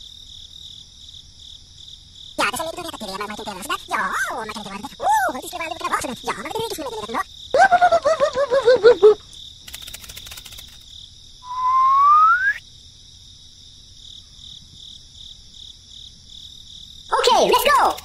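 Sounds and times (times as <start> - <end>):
crickets chirping: 0.0 - 18.0
squeaky cartoon voice babbling: 2.4 - 7.8, 17.1 - 18.0
rising whistle: 11.4 - 12.6.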